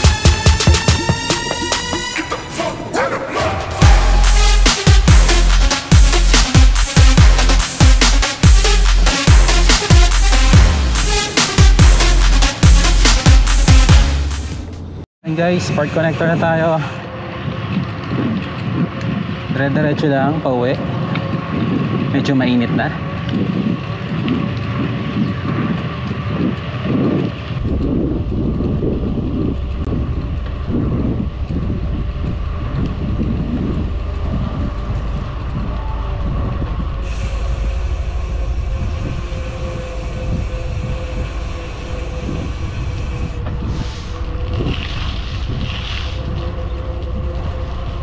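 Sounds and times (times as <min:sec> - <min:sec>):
bicycle tyre noise: 0:03.8 - 0:48.0
wind on microphone: 0:15.4 - 0:48.0
high hiss: 0:37.0 - 0:44.4.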